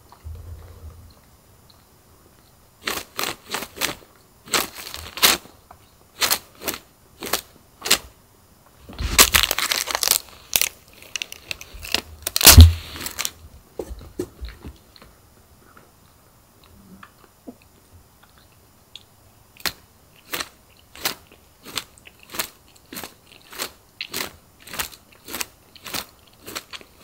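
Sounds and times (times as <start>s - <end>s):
heavy thump: 0.2s - 1.2s, 12.5s - 13.1s.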